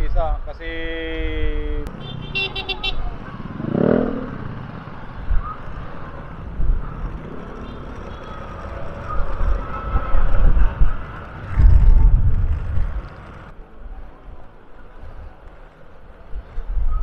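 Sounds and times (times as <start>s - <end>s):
motorcycle riding: 1.9s - 13.6s
wind buffeting microphone: 3.0s - 13.6s.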